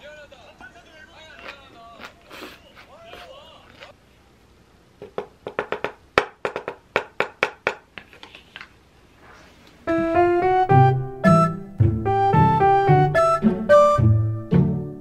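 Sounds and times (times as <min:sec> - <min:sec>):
piano melody: 0:09.8 - 0:15.0.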